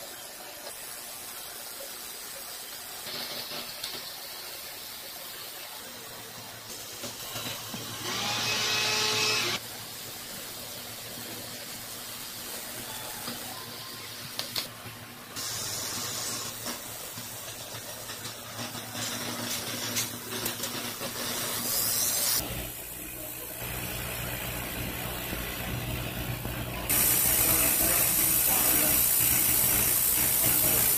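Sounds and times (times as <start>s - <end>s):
cutting machine hissing and humming: 6.8s - 14.7s, 18.7s - 30.9s.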